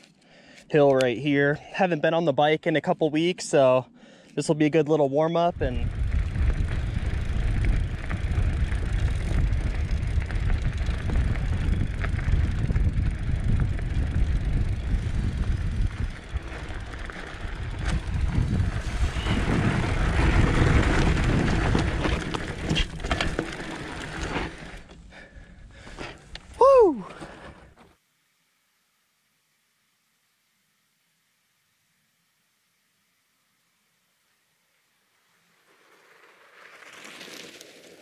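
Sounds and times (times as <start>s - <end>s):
wind rumble on microphone: 5.5s - 22.9s
bike clicks and rattles: 5.7s - 27.9s
tyres rolling on dirt and gravel: 5.7s - 27.9s, 35.4s - 38.0s.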